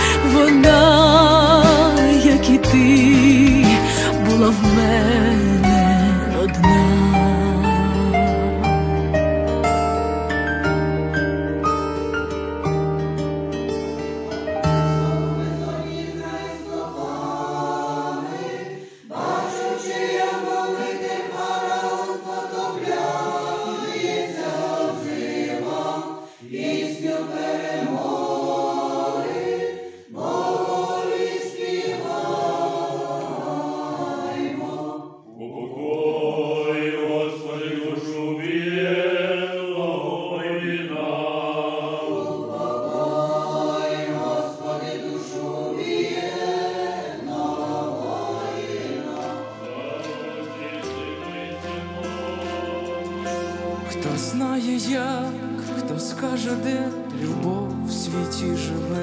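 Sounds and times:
choir singing a cappella: 0:00.0 - 0:08.8, 0:14.5 - 0:59.0
soft instrumental melody: 0:00.0 - 0:16.1, 0:47.3 - 0:59.0.

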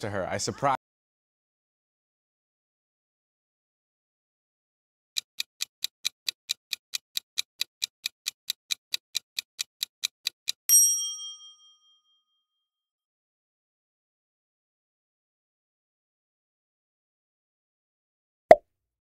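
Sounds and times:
clock-like ticking: 0:05.2 - 0:10.7
bright ding: 0:10.7 - 0:12.2.

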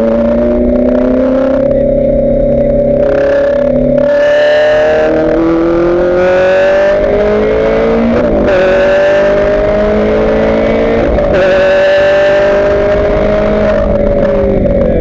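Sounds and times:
race car engine accelerating: 0:00.0 - 0:15.0.

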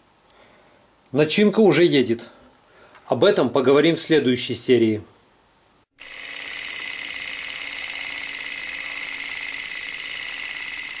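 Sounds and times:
rapidly pulsing buzz: 0:06.0 - 0:11.0.

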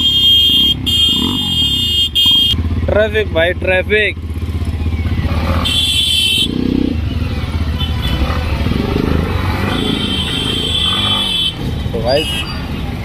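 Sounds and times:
high-pitched vehicle horn: 0:00.0 - 0:02.6, 0:05.6 - 0:06.7, 0:07.7 - 0:08.6, 0:09.6 - 0:12.6
motorcycle engine running: 0:00.0 - 0:13.0.

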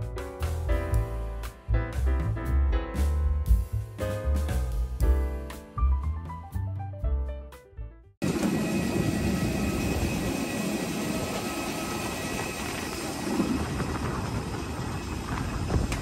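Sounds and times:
piano music: 0:00.0 - 0:08.4
aircraft turbines roaring: 0:08.2 - 0:16.0
thin high whine: 0:08.2 - 0:16.0.

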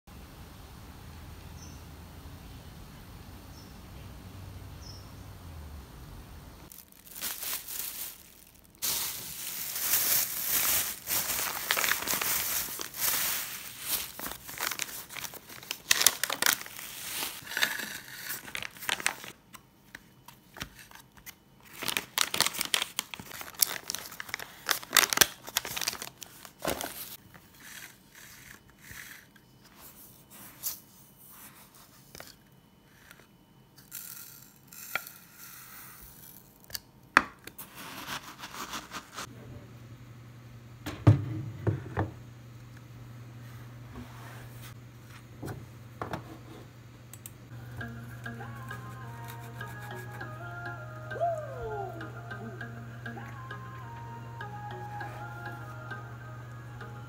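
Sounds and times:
paper wrapping crinkling and tearing: 0:06.7 - 0:19.4, 0:20.6 - 0:27.9, 0:37.6 - 0:39.3.

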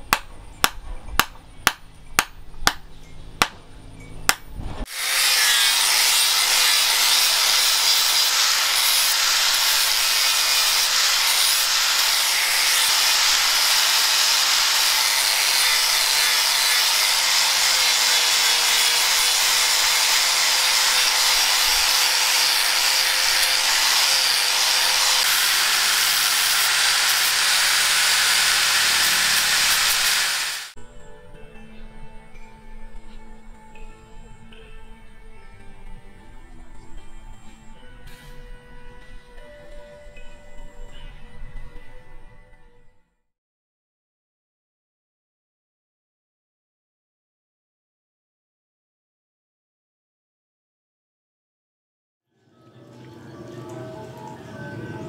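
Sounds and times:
angle grinder grinding steel: 0:04.8 - 0:30.8.

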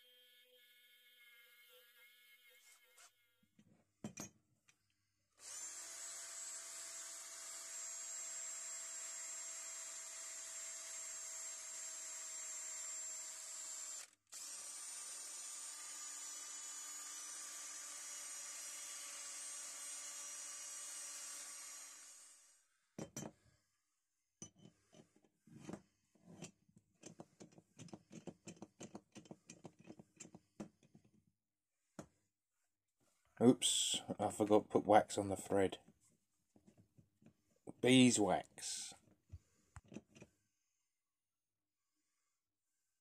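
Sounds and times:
rotary tool whining: 0:00.0 - 0:03.3, 0:05.4 - 0:08.2.

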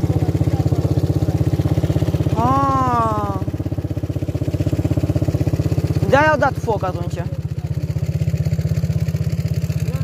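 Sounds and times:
atv engine running: 0:00.0 - 0:10.0
person calling out: 0:02.4 - 0:03.5.

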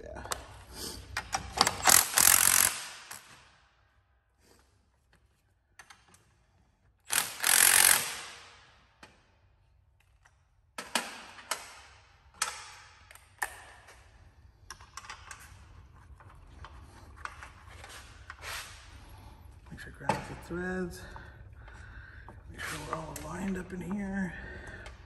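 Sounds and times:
cordless drill running: 0:01.9 - 0:02.9, 0:07.1 - 0:08.3.

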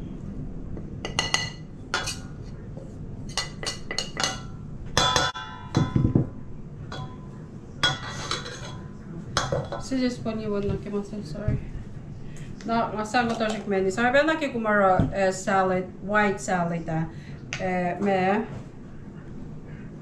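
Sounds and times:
metal utensil clinking on dishes: 0:01.1 - 0:02.4, 0:03.3 - 0:06.1, 0:06.9 - 0:10.0.

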